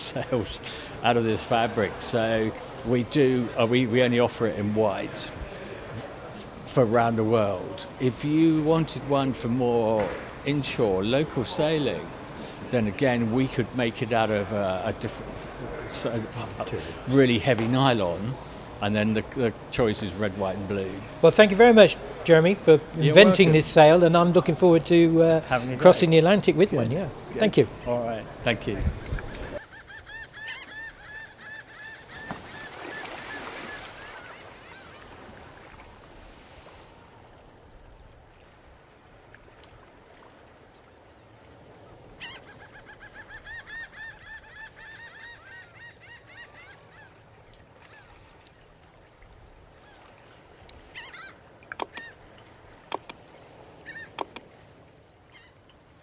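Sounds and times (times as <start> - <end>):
faint steady hiss: 0.0 - 30.1, 31.0 - 44.6
birds honking: 29.0 - 35.2, 50.9 - 52.2, 53.8 - 54.4
sharp clicks: 51.7 - 52.1, 52.9 - 53.2, 54.2 - 54.5.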